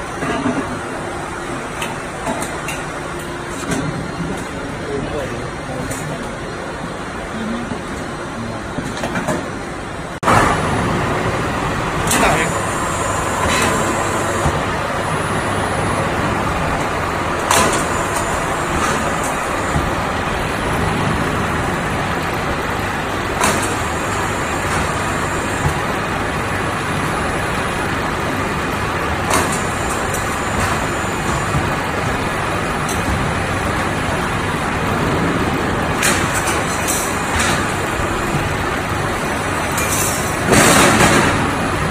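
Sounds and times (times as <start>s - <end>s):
loud machine noise: 0.0s - 41.9s
sharp machine knocks: 40.4s - 41.6s.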